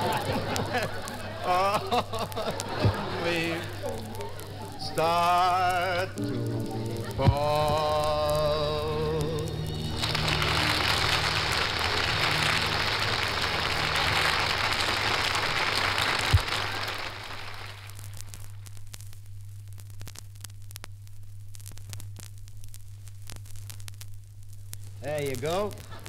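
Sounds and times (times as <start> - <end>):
studio audience applauding: 0.0 - 5.6, 7.0 - 18.1
record surface crackle: 0.0 - 26.0
steady low hum: 0.0 - 26.0.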